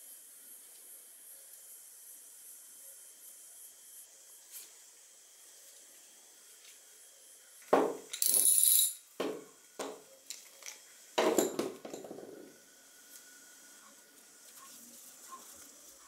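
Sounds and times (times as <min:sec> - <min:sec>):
ringing metallic clink: 0:08.1 - 0:09.0
small metal parts clicking: 0:08.1 - 0:09.0.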